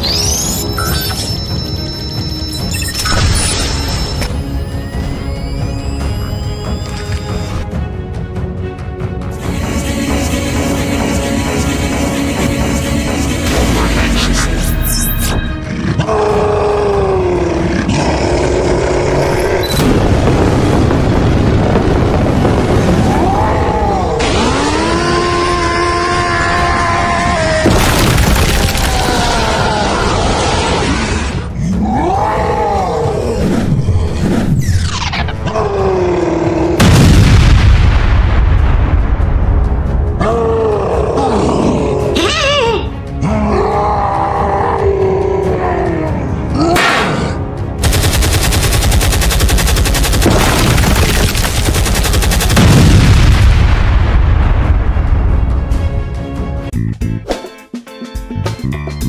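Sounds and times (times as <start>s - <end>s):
wavering groan-like cry: 15.6s - 19.5s, 28.7s - 34.2s, 40.2s - 47.4s
heavy explosion boom: 19.8s - 23.4s, 36.8s - 40.0s, 52.5s - 56.0s
rapid machine-gun fire: 47.8s - 53.5s.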